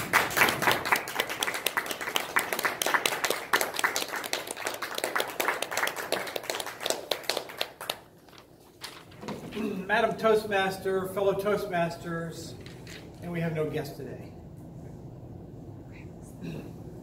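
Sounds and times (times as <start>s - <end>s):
hands clapping applause: 0.0s - 8.1s.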